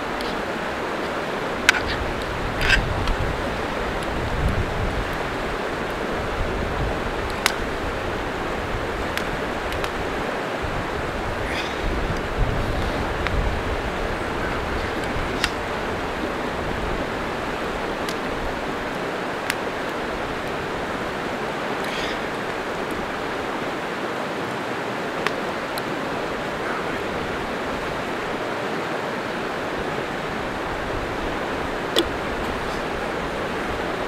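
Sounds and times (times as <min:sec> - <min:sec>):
steady rushing hiss: 0:00.0 - 0:34.0.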